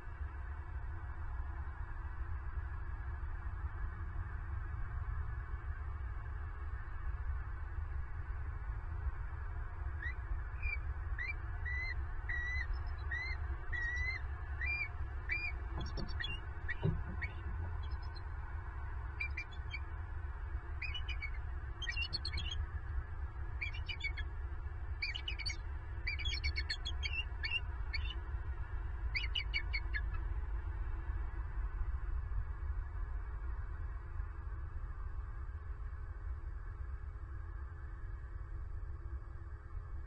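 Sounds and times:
eagles chirping: 0:10.0 - 0:18.3, 0:19.2 - 0:20.0, 0:20.8 - 0:22.6, 0:23.6 - 0:24.3, 0:25.0 - 0:28.2, 0:29.1 - 0:30.2
eagles stuttering chitters: 0:10.6 - 0:18.2, 0:19.2 - 0:19.9, 0:20.8 - 0:22.6, 0:23.6 - 0:24.2, 0:25.0 - 0:28.2, 0:29.2 - 0:30.1.

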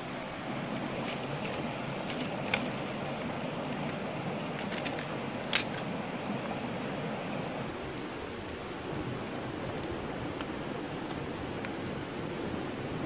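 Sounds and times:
flowing water rushing: 0:00.0 - 0:13.0
dry twigs snapping: 0:00.7 - 0:05.8.

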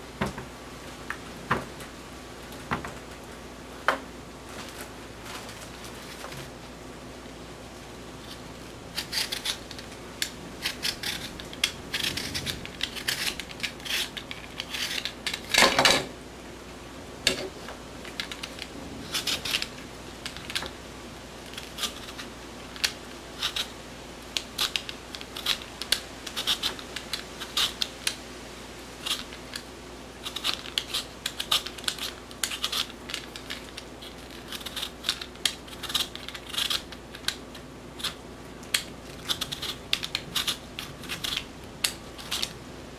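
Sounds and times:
peeler scraping potato skin: 0:08.2 - 0:15.7, 0:17.4 - 0:20.7, 0:21.4 - 0:23.7, 0:24.3 - 0:28.2, 0:29.0 - 0:42.6.

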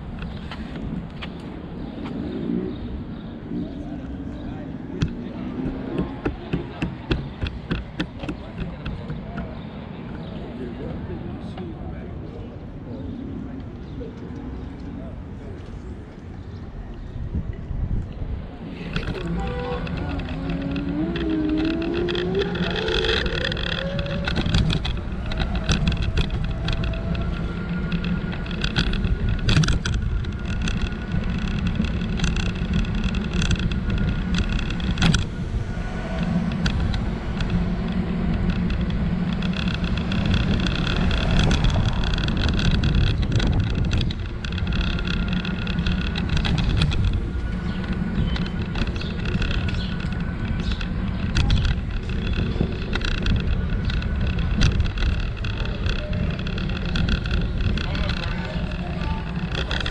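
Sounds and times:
rumble of wind and wheels: 0:00.0 - 0:59.9
scooter motor whine: 0:18.6 - 0:59.9
scooter jolting over cracks: 0:18.7 - 0:35.4, 0:36.2 - 0:59.9.

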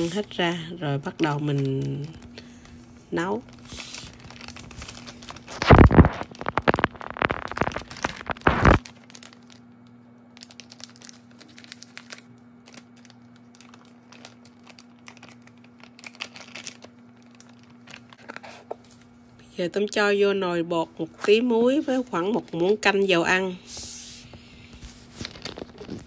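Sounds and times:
plastic bag crinkling: 0:00.0 - 0:19.2, 0:21.3 - 0:23.4, 0:24.5 - 0:26.0
scissors snipping plastic bag: 0:03.3 - 0:09.6, 0:10.4 - 0:18.4.

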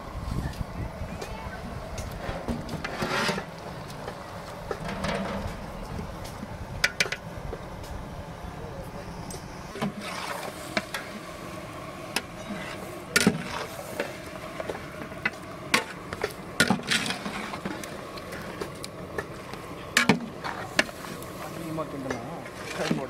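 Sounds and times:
metal ladle scraping a pot: 0:02.3 - 0:03.6, 0:09.8 - 0:11.1.

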